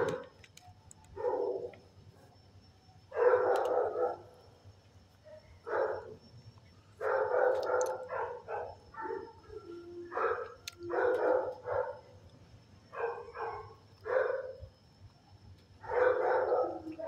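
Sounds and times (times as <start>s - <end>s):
dogs barking: 3.1s - 4.3s, 7.0s - 9.5s, 10.1s - 12.1s, 12.9s - 14.6s, 15.8s - 17.0s.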